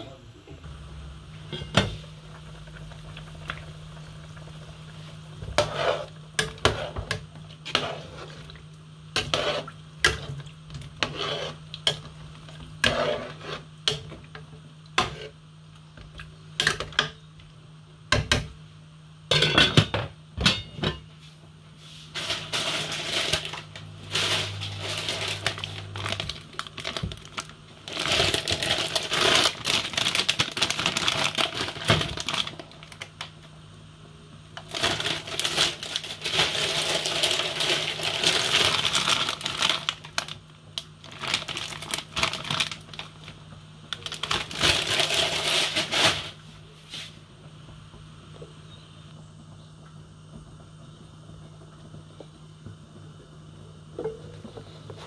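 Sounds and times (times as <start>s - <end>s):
steady low hum: 0.0s - 55.0s
rustling noise: 21.2s - 27.0s, 44.7s - 47.3s.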